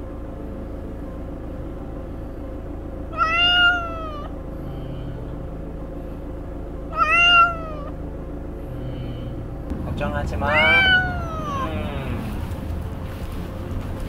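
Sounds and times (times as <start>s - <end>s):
steady low hum: 0.0s - 14.0s
cat meowing: 3.1s - 4.3s, 6.9s - 8.0s, 10.4s - 12.1s.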